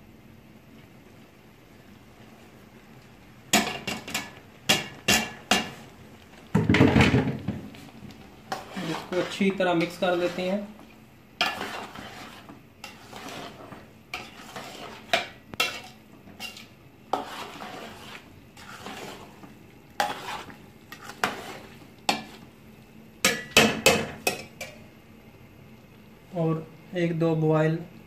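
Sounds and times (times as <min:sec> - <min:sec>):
metal spoon scraping a pot: 0:08.5 - 0:10.6, 0:11.4 - 0:19.4, 0:20.0 - 0:22.4.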